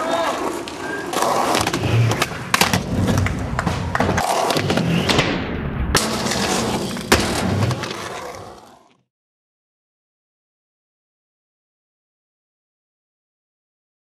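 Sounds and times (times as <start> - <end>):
skateboard wheels rolling on concrete: 0.0 - 5.4, 6.0 - 9.1
skateboard clacks and thuds: 0.5 - 5.4, 6.0 - 8.4.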